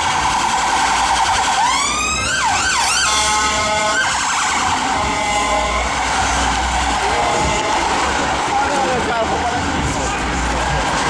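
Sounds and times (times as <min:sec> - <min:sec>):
ambulance siren sweeping: 0:00.0 - 0:11.0
bullhorn blast: 0:03.0 - 0:08.3.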